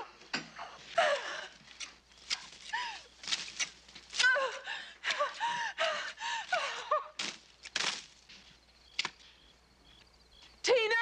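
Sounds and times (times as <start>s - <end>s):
branches tearing and rustling: 1.6s - 4.4s, 6.6s - 9.3s
woman gasping and grunting: 4.2s - 7.1s.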